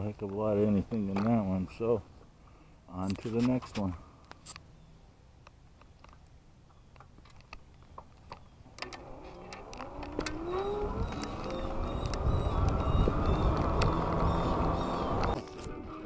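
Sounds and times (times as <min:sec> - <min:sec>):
wind and road noise: 0:00.0 - 0:16.0
electric motor whine: 0:08.8 - 0:16.0.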